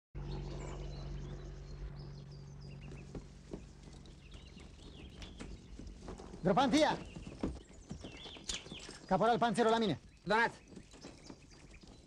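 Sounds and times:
steady low hum: 0.2 - 8.3
faint birds chirping: 0.2 - 12.0.

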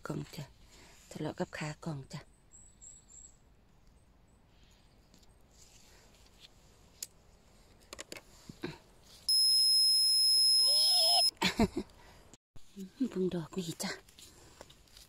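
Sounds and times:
high-pitched electronic beep: 9.3 - 11.3
warbling call: 10.0 - 11.3.

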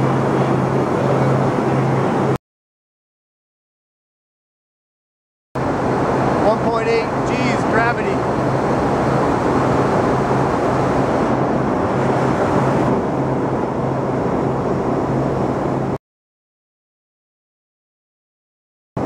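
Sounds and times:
airplane cabin engine noise: 0.0 - 2.4, 5.6 - 16.0.

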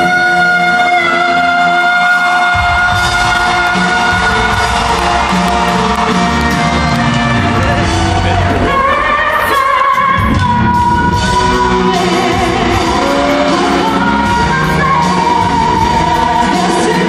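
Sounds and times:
woman belting a pop song: 0.0 - 4.7, 8.4 - 17.0
band accompaniment: 0.0 - 17.0.

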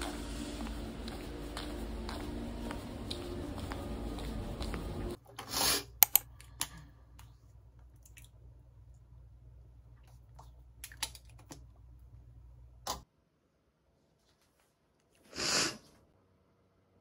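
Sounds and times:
low steady hum: 0.0 - 5.4, 6.0 - 12.9.

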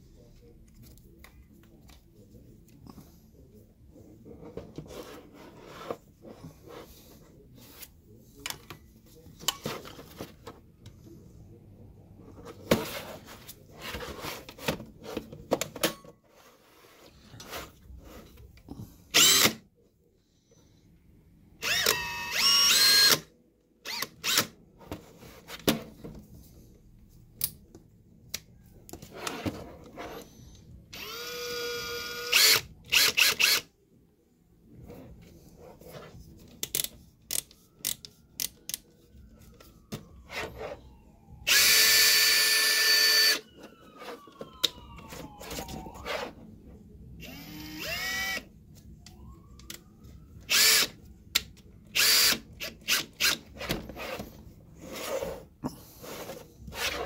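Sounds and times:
cordless drill motor whirring: 19.1 - 19.6, 21.6 - 23.2, 23.9 - 24.5, 31.0 - 33.6, 41.5 - 43.4, 47.2 - 48.5, 50.5 - 51.0, 52.0 - 53.4.

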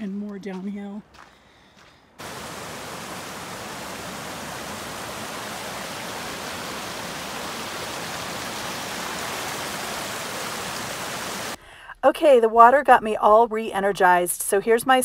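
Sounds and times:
creek rushing over rocks: 2.2 - 11.6.

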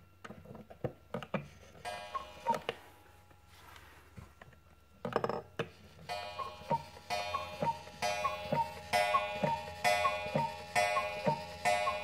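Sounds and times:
clock mechanism clatter: 1.8 - 2.8, 6.0 - 12.0
cuckoo clock two-note whistle: 1.9 - 2.7, 6.1 - 12.0.

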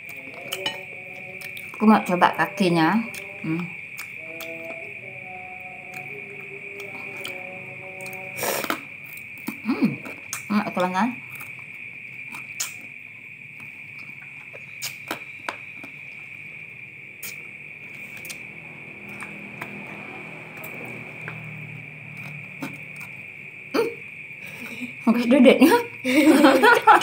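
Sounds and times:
crickets chirring: 0.0 - 27.0
chewing clicks: 12.3 - 12.9, 14.4 - 16.0.

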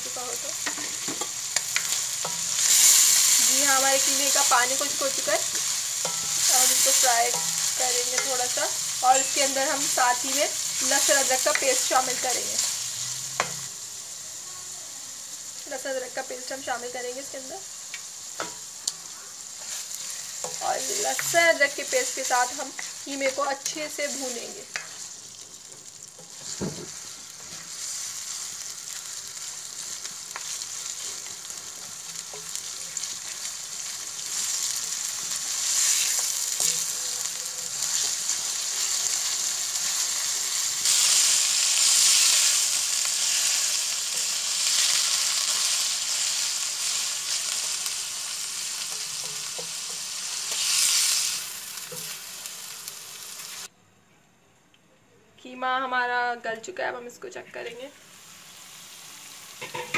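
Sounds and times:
meat sizzling in hot oil: 0.0 - 53.7, 58.0 - 59.9
spatula stirring: 0.6 - 9.9, 19.6 - 28.5.

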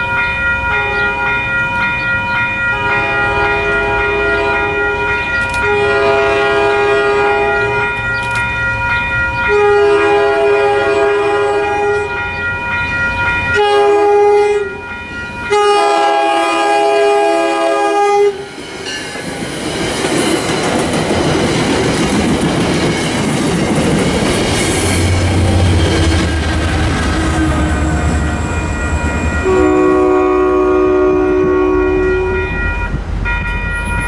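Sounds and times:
diesel locomotive engine rumble: 0.0 - 34.0
train wheels rushing on rails: 0.0 - 34.0
train air horn blasts: 2.7 - 8.0, 9.5 - 12.2, 13.6 - 14.8, 15.5 - 18.5, 25.0 - 28.8, 29.4 - 33.0.

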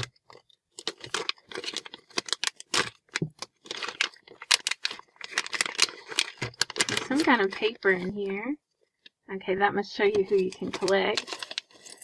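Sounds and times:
plastic wrapper crinkling and tearing: 0.0 - 8.4, 10.1 - 12.0
plastic pieces rattling in bag: 0.8 - 7.7, 10.4 - 12.0.

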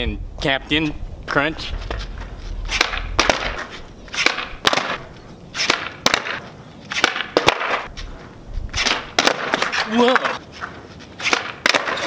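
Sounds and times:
skateboard wheels rolling: 1.6 - 12.0
skateboard clacking on concrete: 1.9 - 8.2, 8.8 - 12.0.

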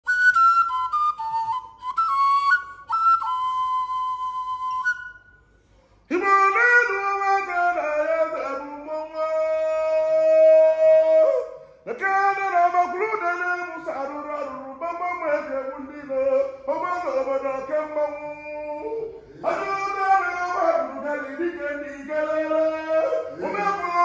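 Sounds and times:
high clear flute melody: 0.0 - 5.5
person singing with sliding notes: 11.9 - 24.0.

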